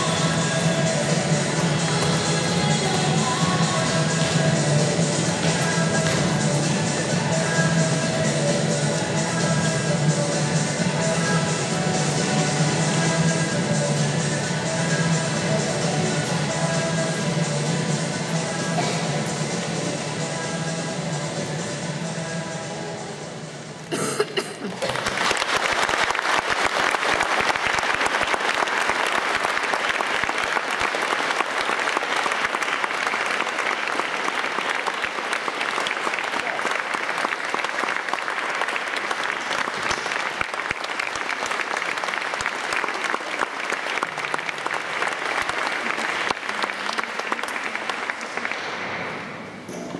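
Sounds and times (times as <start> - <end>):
audience applauding: 24.6 - 49.0.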